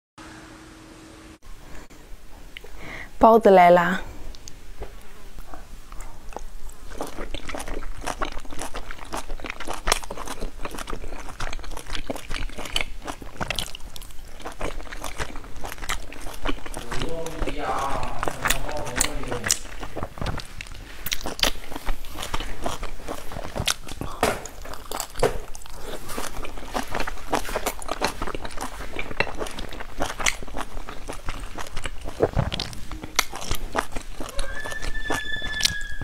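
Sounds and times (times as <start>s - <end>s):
crunchy chewing: 4.3s - 36.0s.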